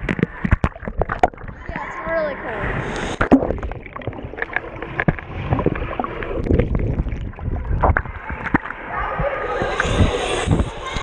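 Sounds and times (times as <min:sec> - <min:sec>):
bubbly pops underwater: 0:00.0 - 0:01.8, 0:03.2 - 0:09.3
muffled water sloshing: 0:00.0 - 0:09.4.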